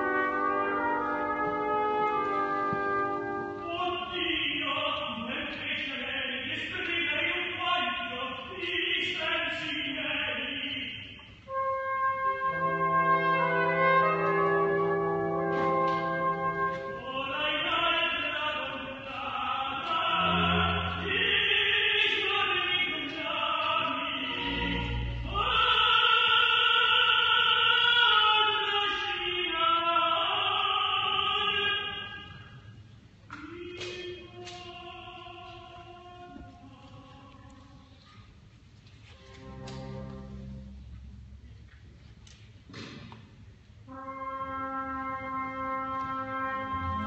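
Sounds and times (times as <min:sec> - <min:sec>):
live orchestral music with brass: 0:00.0 - 0:05.0, 0:11.4 - 0:19.3, 0:20.0 - 0:32.0, 0:39.1 - 0:41.4, 0:43.8 - 0:47.0
operatic singing: 0:00.0 - 0:11.6, 0:15.2 - 0:32.4, 0:33.3 - 0:37.8.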